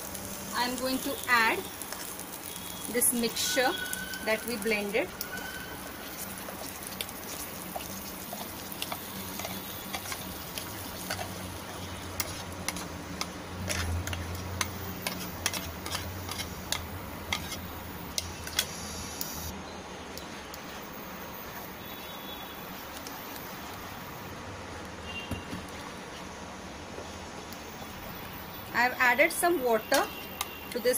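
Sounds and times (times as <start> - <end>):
utensil tapping and scraping: 6.2 - 18.7.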